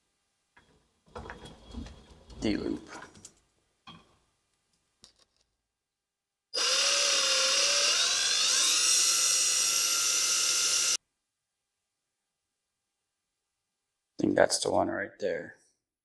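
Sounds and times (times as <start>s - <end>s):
small power tool motor: 6.6s - 11.0s.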